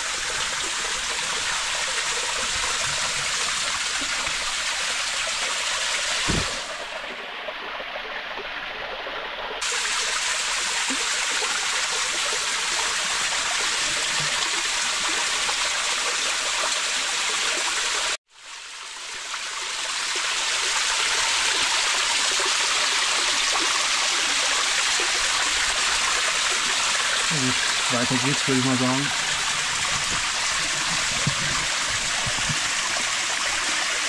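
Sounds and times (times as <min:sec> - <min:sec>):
waterfall rushing and splashing: 0:00.0 - 0:07.1, 0:20.6 - 0:34.0.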